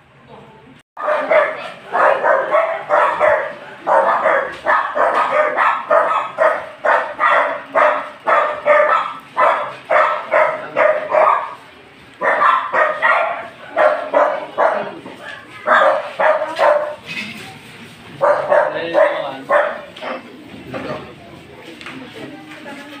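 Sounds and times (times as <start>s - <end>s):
dog barking: 1.0s - 11.6s, 12.2s - 17.1s, 18.2s - 20.2s.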